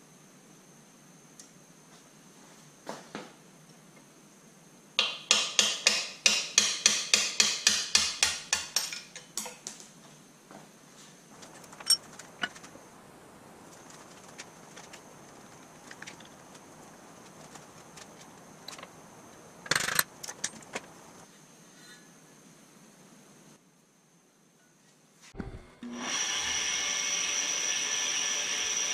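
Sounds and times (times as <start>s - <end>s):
hammer tapping on metal: 5.0s - 9.6s.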